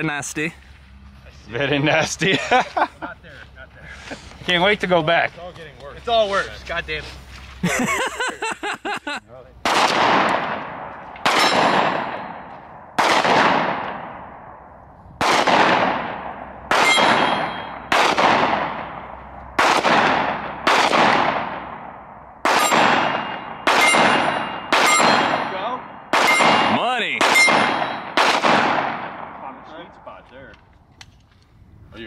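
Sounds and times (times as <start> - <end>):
handgun shots echoing: 9.7 - 14.2, 15.2 - 19.0, 19.6 - 29.3
metallic ping of steel targets: 11.3 - 12.4, 16.7 - 17.9, 22.5 - 28.2.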